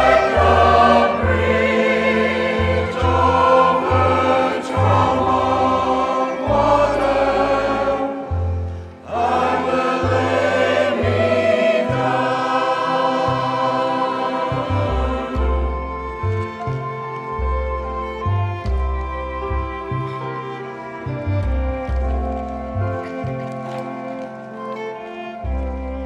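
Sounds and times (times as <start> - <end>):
choir singing held chords: 0.0 - 16.9
instrumental accompaniment: 0.0 - 26.0.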